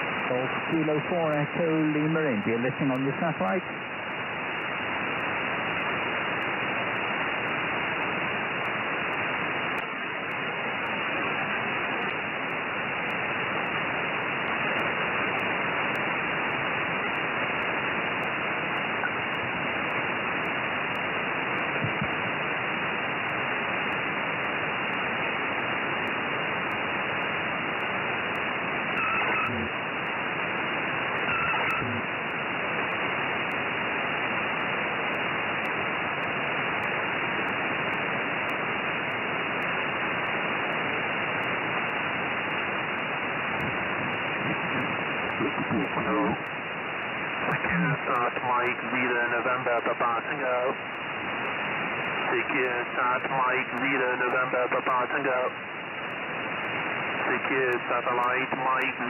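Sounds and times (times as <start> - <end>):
radio receiver hiss: 0.0 - 59.0
faint short tones: 29.0 - 29.7, 31.2 - 32.0.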